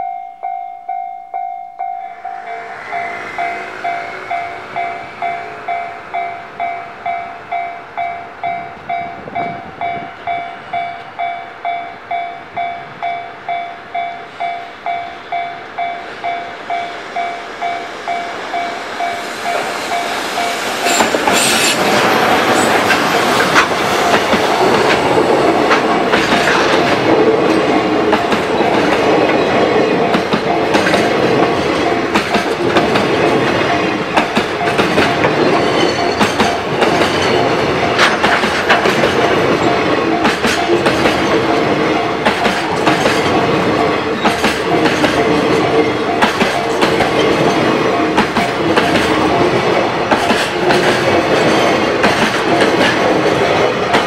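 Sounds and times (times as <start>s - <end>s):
freight wagons rumbling on rails: 1.8s - 54.0s
wheels clattering over rail joints: 17.1s - 54.0s.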